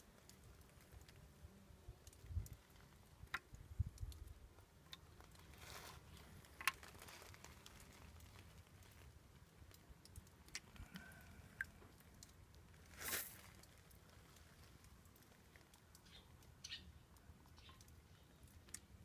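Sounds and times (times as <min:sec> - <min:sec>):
soft hiss: 0:00.0 - 0:19.0
faint clicks and ticks: 0:02.0 - 0:05.4, 0:06.5 - 0:12.8.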